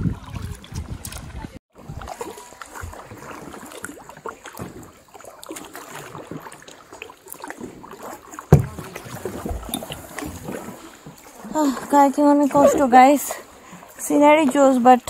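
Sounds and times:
paddle splashing in water: 0.0 - 15.0
loud thump: 8.5 - 8.8.

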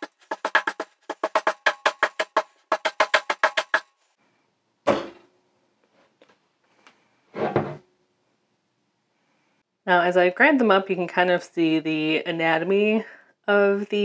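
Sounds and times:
pestle pounding in mortar: 0.0 - 3.8.

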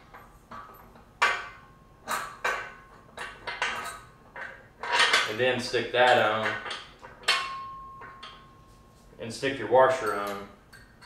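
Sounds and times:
metal parts clinking: 2.1 - 8.5.

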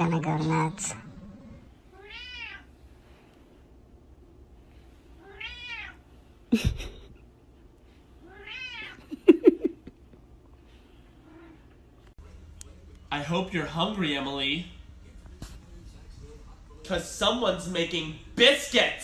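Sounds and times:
cat meowing: 1.9 - 2.7, 5.2 - 6.0, 8.2 - 9.1.

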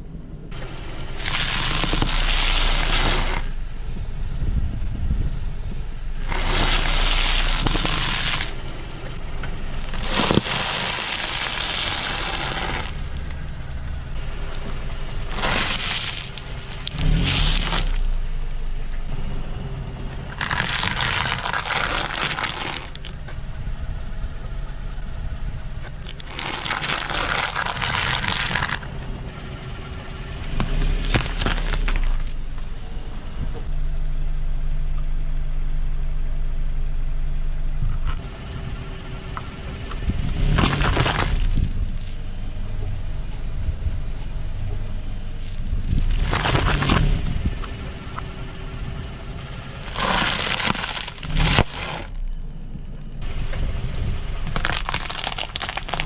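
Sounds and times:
car low rumble: 0.0 - 56.0
fruit squashed: 1.0 - 3.6, 6.2 - 8.6, 9.8 - 13.5, 15.2 - 18.2, 20.3 - 23.4, 25.8 - 28.9, 30.5 - 32.4, 40.3 - 42.2, 45.4 - 47.3, 49.8 - 52.3, 54.5 - 56.0
tyre crushing food: 1.0 - 3.6, 6.2 - 8.6, 9.8 - 13.5, 15.3 - 18.1, 20.3 - 23.3, 25.8 - 28.9, 30.6 - 32.4, 40.4 - 42.2, 45.4 - 47.3, 49.8 - 52.2, 54.5 - 56.0.

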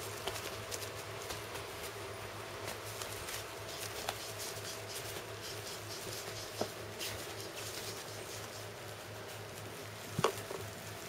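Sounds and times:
steady low hum: 0.0 - 11.0
puppy claws scratching: 2.7 - 10.5.

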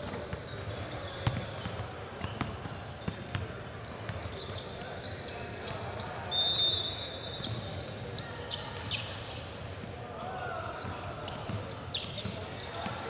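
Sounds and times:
sneaker squeaks: 0.0 - 13.0
short high whistle: 6.3 - 7.4.

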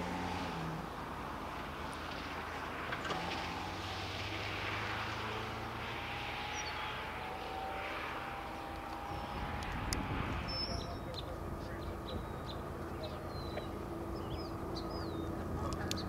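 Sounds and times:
large vehicle rumbling: 8.8 - 16.0.

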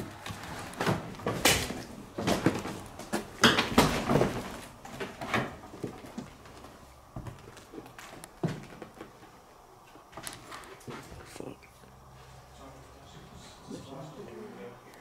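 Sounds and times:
footsteps on creaking stairs: 0.0 - 9.4.

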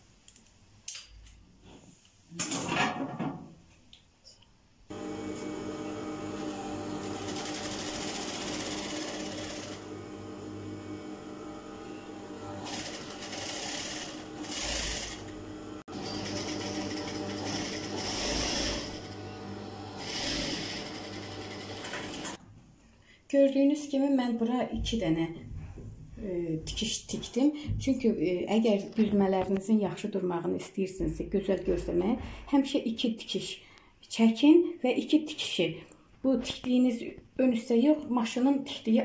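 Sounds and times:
sewing machine running: 4.9 - 22.4.

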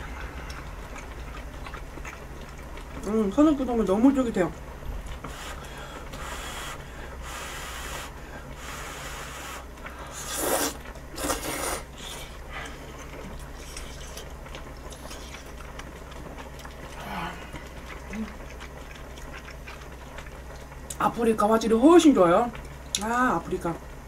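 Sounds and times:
person chewing: 0.0 - 3.1, 5.1 - 21.0
person slurping noodles: 5.3 - 12.4.

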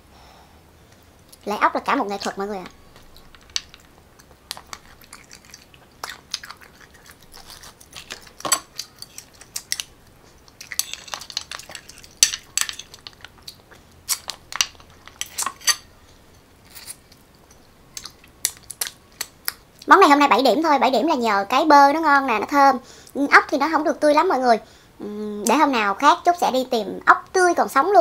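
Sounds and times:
chewing: 2.9 - 15.5, 16.6 - 19.9.

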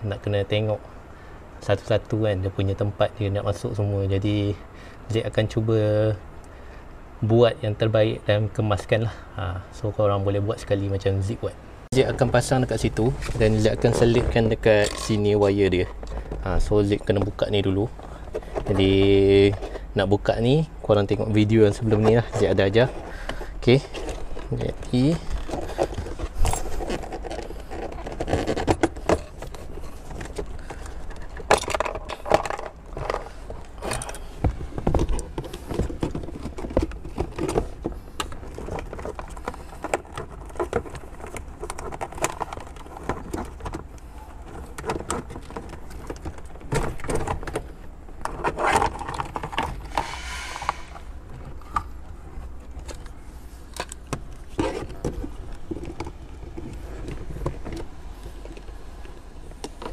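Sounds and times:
plastic trim clicking and scraping: 21.9 - 59.9.

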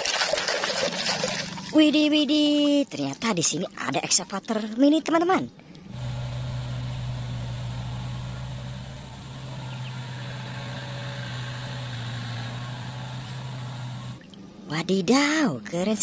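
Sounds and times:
excavator diesel engine running: 5.9 - 14.2.

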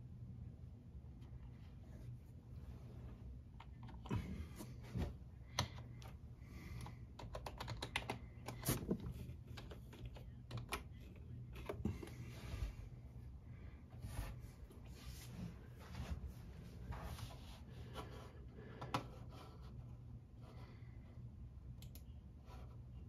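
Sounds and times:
keyboard keys being pressed: 7.2 - 8.6.

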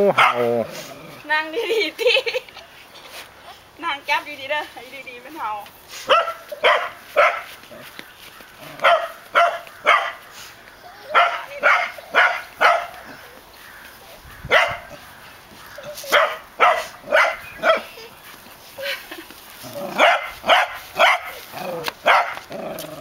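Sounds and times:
dog barking: 0.1 - 0.5, 6.1 - 7.5, 8.8 - 10.2, 11.1 - 13.0, 14.5 - 14.9, 16.1 - 17.9, 19.9 - 21.4, 22.0 - 22.4.

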